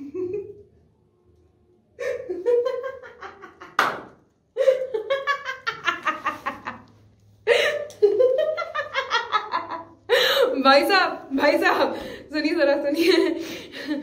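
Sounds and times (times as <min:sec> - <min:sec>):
woman laughing: 0:00.0 - 0:00.6, 0:02.0 - 0:03.8, 0:04.6 - 0:06.8, 0:07.5 - 0:10.6.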